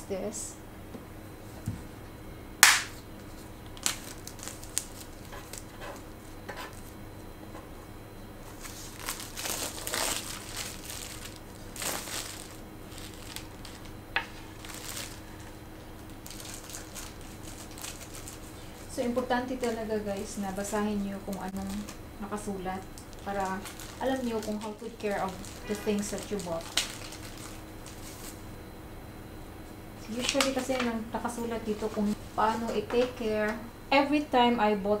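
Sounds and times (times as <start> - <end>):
paper crinkling: 3.2 - 6.1, 8.4 - 22.0, 23.0 - 28.4, 30.1 - 30.8.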